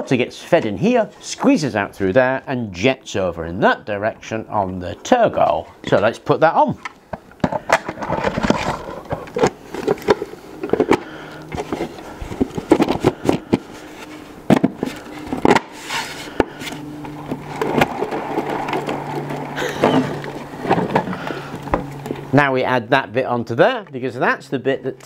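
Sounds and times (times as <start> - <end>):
plastic parts knocking and scraping: 6.7 - 22.3.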